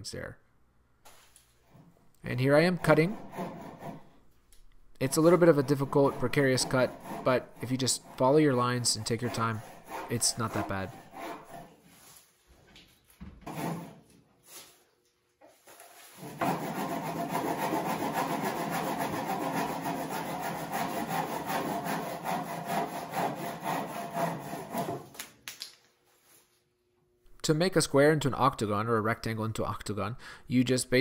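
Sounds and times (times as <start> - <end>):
hand saw cutting wood: 2.4 - 4.2, 5.0 - 11.8, 13.4 - 14.1, 16.2 - 25.2.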